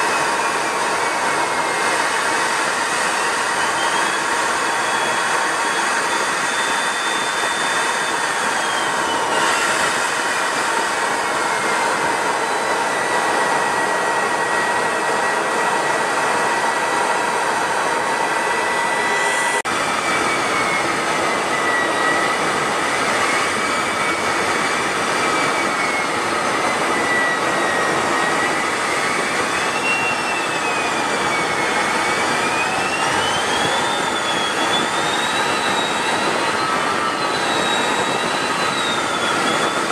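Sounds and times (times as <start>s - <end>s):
jet engine with turbine whine: 0.0s - 39.9s.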